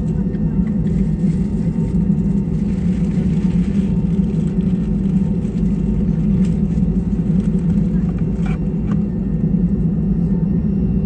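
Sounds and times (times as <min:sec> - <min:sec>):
airliner cabin engine rumble: 0:00.0 - 0:11.0.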